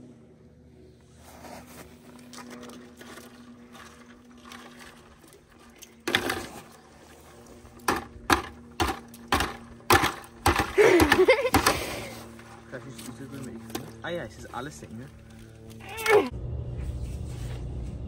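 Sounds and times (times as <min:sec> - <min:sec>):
liquid splashing into bucket: 0:02.2 - 0:14.0.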